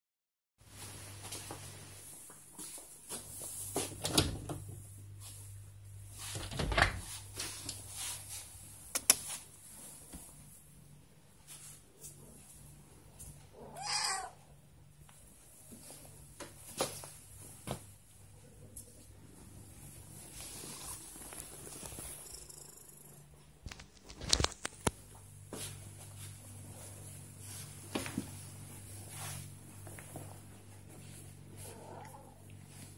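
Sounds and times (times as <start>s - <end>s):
glass door clicks and knocks: 6.4s - 7.0s
cat purring: 19.9s - 23.2s.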